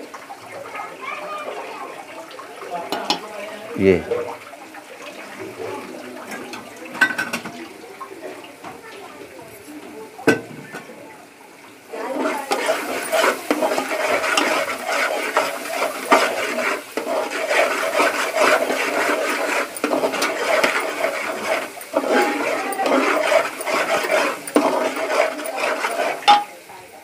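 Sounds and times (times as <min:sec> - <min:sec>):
masala sizzling in oil: 0:00.0 - 0:27.0
metal ladle scraping pot: 0:11.9 - 0:26.7.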